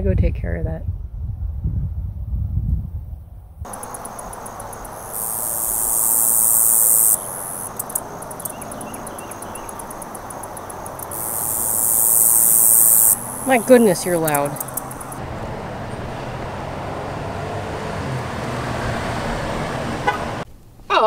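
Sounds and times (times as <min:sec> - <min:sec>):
wind rumble on microphone: 0:00.0 - 0:04.8
cicada buzzing: 0:03.7 - 0:15.2
cicada ticking pulses: 0:03.7 - 0:15.2.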